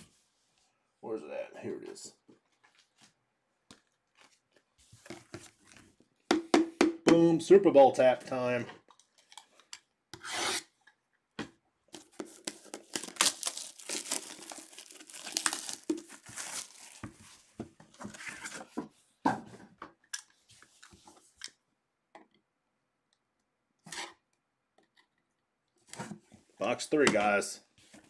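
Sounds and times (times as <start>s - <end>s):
plastic wrap crinkling: 12.0s - 17.5s
shrink wrap tearing: 12.3s - 17.1s.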